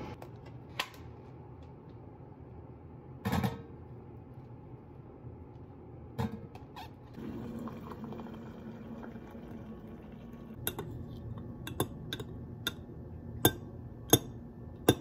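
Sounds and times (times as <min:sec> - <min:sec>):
hot water pouring into glass mug: 0:07.2 - 0:10.8.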